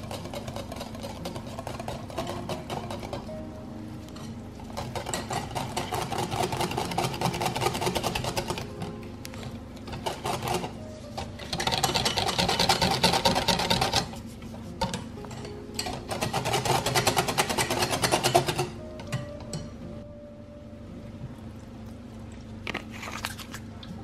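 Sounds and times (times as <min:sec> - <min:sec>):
whisk rattling against glass bowl: 0:00.0 - 0:03.4, 0:04.2 - 0:08.8, 0:09.9 - 0:14.2, 0:15.8 - 0:18.8.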